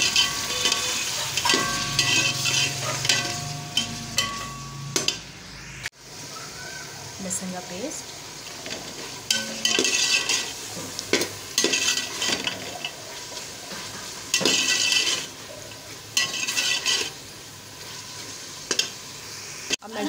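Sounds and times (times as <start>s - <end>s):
spatula scraping pot: 0.0s - 4.6s, 9.3s - 13.0s, 13.7s - 15.4s, 16.2s - 17.2s
metal clinks: 0.0s - 5.1s
steady frying sizzle: 0.0s - 20.0s.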